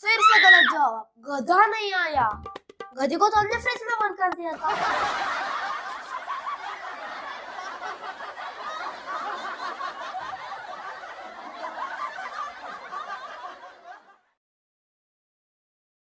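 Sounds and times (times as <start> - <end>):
laughter: 4.5 - 14.4.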